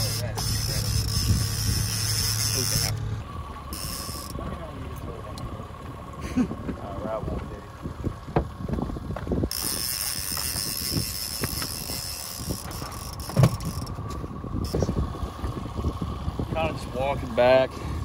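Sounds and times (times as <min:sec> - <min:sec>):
fishing reel whirring: 0:00.0 - 0:04.4, 0:09.5 - 0:14.0
low rumble of wind and boat: 0:00.0 - 0:18.0.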